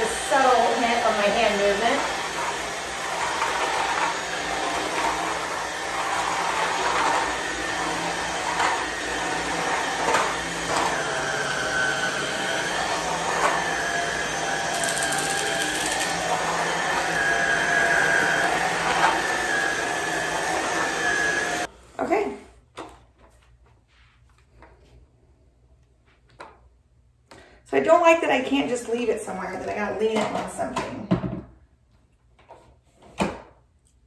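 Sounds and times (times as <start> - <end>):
stick vacuum motor whine: 0.0 - 21.7.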